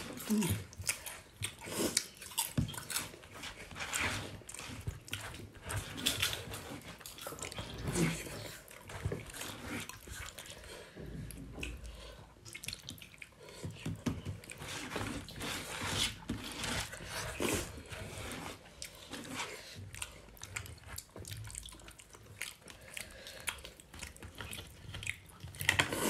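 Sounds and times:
wet chewing and lip smacking: 0.0s - 15.4s, 16.8s - 26.0s.

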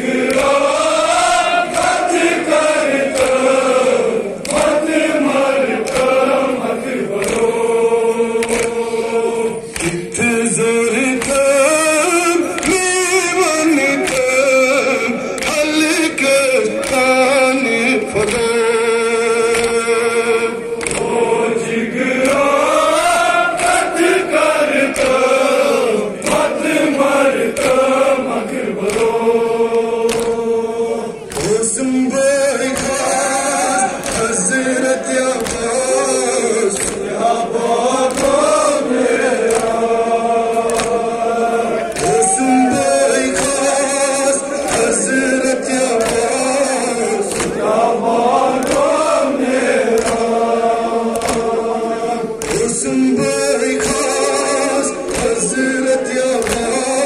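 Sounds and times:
men chanting a lament: 0.0s - 57.0s
chest-beating slaps: 7.2s - 7.5s, 8.4s - 8.8s, 28.8s - 29.2s, 30.1s - 30.4s, 39.4s - 39.8s, 40.6s - 41.0s, 47.3s - 47.6s, 49.9s - 50.4s, 51.1s - 51.5s, 55.1s - 55.6s, 56.4s - 56.7s.

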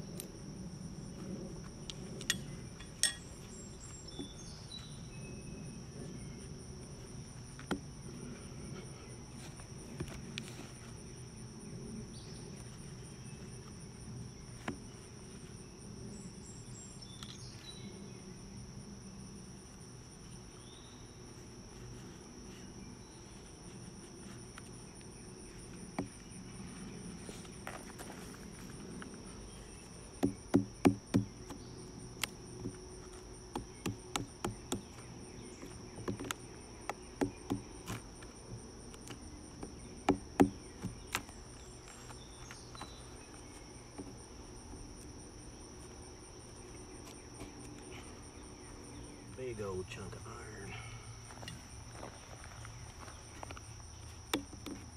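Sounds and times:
insects chirring: 0.0s - 54.9s
metal tool knocking on wooden pole: 2.3s - 3.2s.

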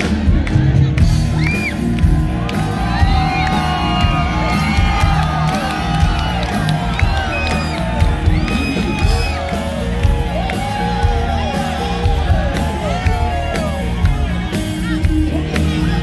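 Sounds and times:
rock band playing loudly: 0.0s - 16.0s.

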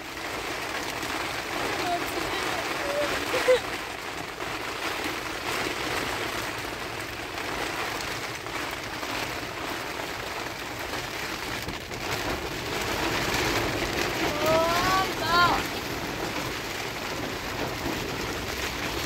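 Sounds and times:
heavy rain on tent fabric: 0.0s - 19.0s.

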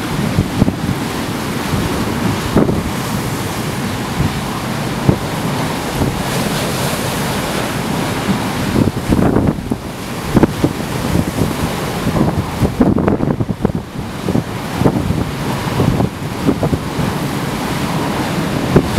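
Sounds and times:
gale wind on microphone: 0.0s - 18.9s
waves breaking over pier: 0.0s - 18.9s.

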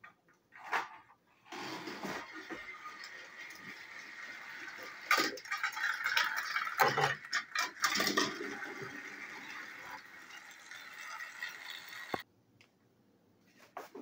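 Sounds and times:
toy train motor whirring: 1.5s - 12.2s.

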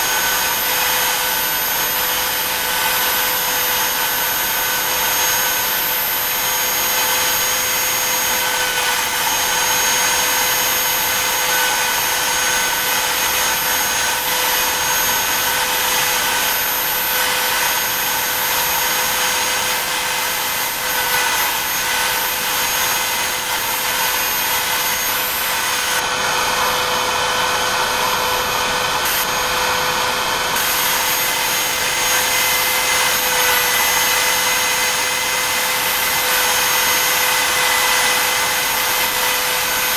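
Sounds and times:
router spindle high whine: 0.0s - 39.9s.

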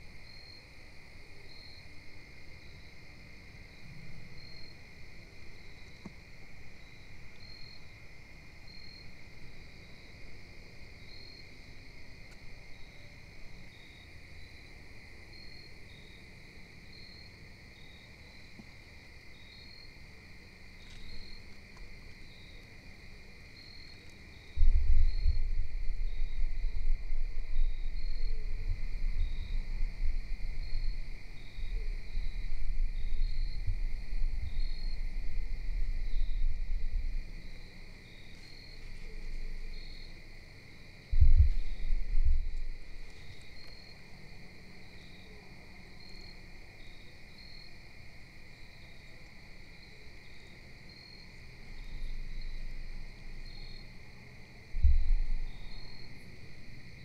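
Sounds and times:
insects chirping: 0.0s - 57.0s
low rumble on microphone: 24.5s - 40.3s, 41.0s - 43.9s, 51.6s - 57.0s.

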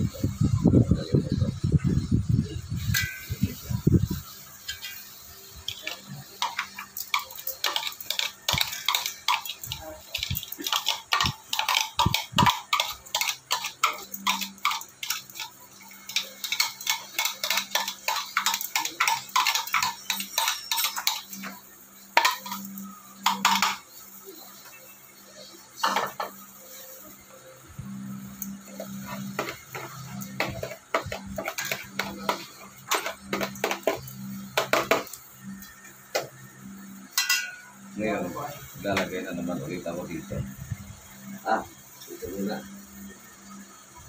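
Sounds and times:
metal spoon scraping steel bowl: 4.2s - 21.6s, 28.8s - 34.5s.

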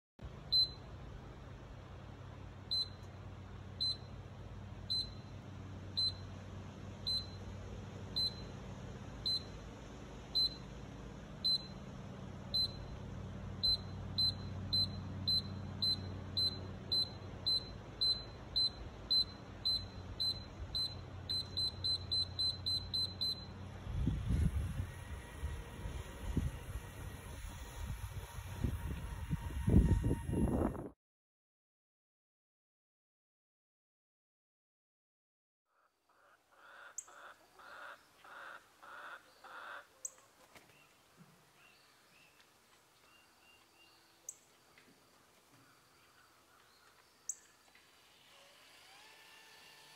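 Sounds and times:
short high alarm beeps: 0.5s - 0.8s, 2.7s - 3.0s, 3.8s - 4.1s, 4.9s - 5.3s, 6.0s - 6.3s, 7.1s - 7.4s, 8.2s - 8.5s, 9.3s - 9.5s, 10.4s - 10.6s, 11.4s - 11.8s, 12.6s - 13.0s, 13.6s - 23.5s.

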